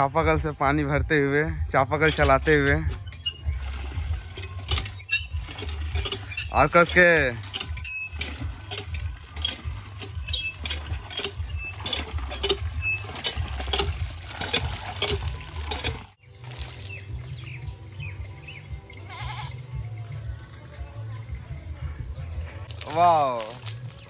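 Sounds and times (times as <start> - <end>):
pump handle creaking and clanking: 0.0 - 19.6
water gushing into a tub: 3.4 - 17.2.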